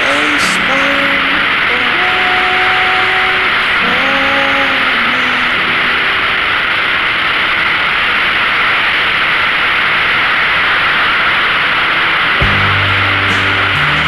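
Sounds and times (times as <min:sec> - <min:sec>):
motorcycle engine: 0:12.3 - 0:14.0.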